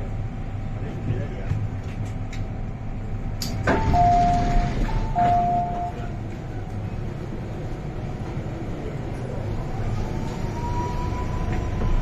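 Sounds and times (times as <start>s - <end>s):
train low hum: 0.0s - 12.0s
two-tone door warning beep: 3.7s - 6.1s.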